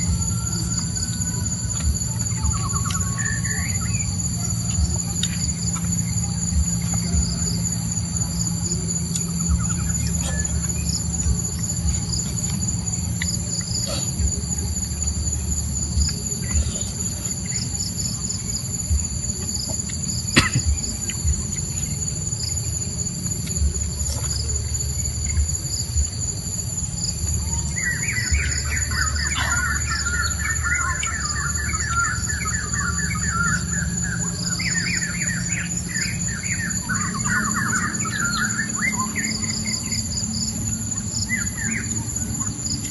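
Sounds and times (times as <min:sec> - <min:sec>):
high-pitched insect chorus: 0:00.0 - 0:42.9
low rumble: 0:00.0 - 0:42.9
bird chattering trill: 0:27.5 - 0:42.9.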